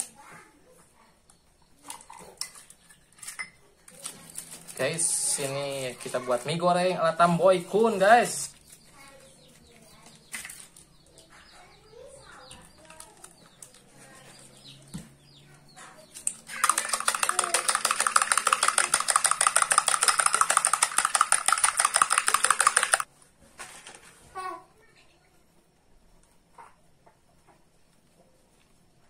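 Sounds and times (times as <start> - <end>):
spoon clattering against glass: 16.5 - 23.1.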